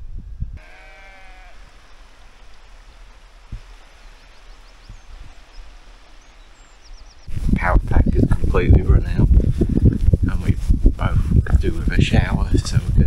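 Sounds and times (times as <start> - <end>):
outdoor hiss and rumble: 0.0 - 13.0
faint high bird chirps: 1.6 - 7.3.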